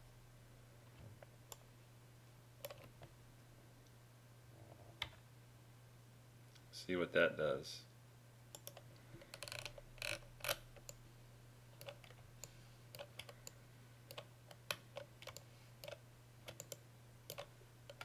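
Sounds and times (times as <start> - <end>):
steady low hum: 0.0 - 18.0
keyboard and mouse clicking: 2.6 - 3.0, 8.5 - 11.0, 11.8 - 18.0.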